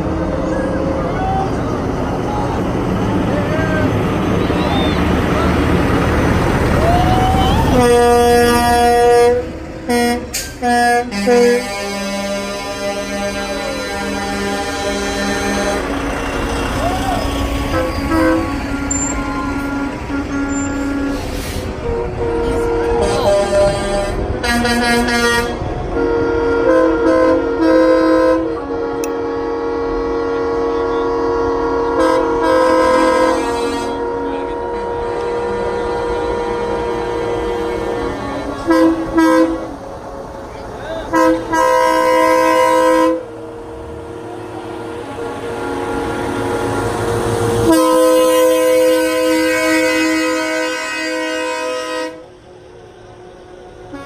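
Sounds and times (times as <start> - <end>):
truck engine passing: 0.0 - 54.0
truck air horn blasts: 7.7 - 16.0, 17.6 - 39.8, 41.1 - 43.4, 44.7 - 52.4, 53.8 - 54.0
low steady horn note: 17.7 - 39.8, 44.6 - 52.4.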